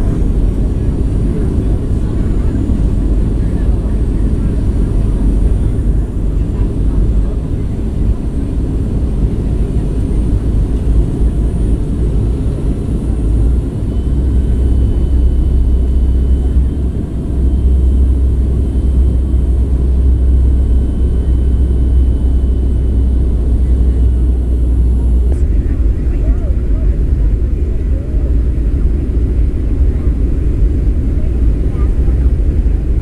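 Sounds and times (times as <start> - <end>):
airliner cabin rumble: 0.0 - 33.0.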